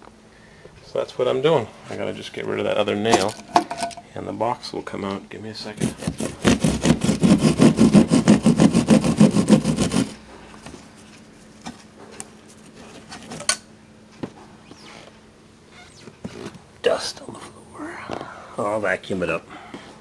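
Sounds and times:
hand saw cutting nail: 5.8 - 10.2.

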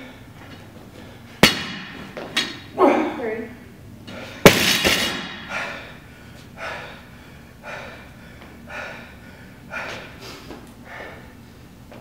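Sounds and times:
heavy breathing: 4.0 - 4.5, 5.2 - 11.6.

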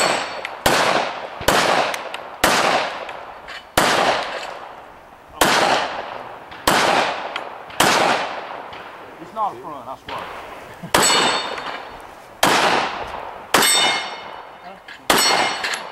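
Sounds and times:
man talking: 9.2 - 10.4
handgun shots with echo: 11.0 - 14.4, 15.1 - 15.9.

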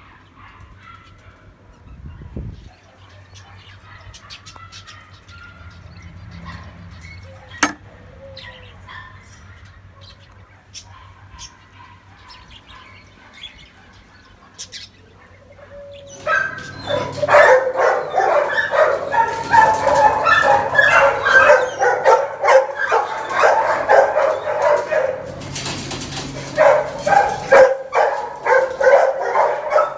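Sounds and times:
many dogs barking: 0.0 - 29.9.

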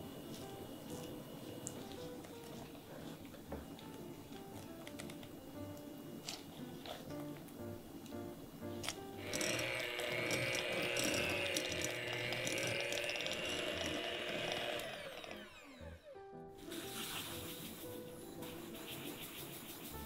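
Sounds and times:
electric hand mixer whine: 9.2 - 17.5.

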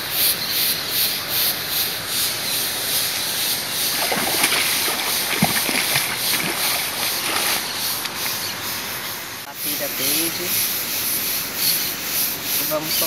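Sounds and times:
water splashing and sloshing: 3.5 - 9.0
steady hiss: 7.7 - 13.0.

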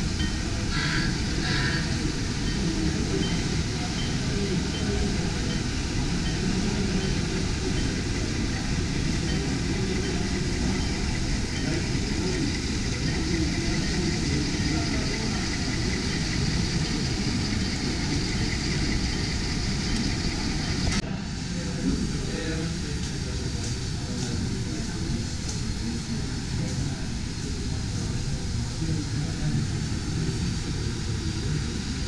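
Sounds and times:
indistinct voices: 0.0 - 32.0.

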